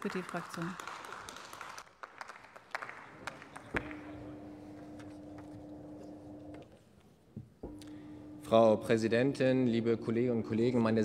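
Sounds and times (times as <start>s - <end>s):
scattered clapping: 0.0s - 4.2s
steady low hum: 3.6s - 11.0s.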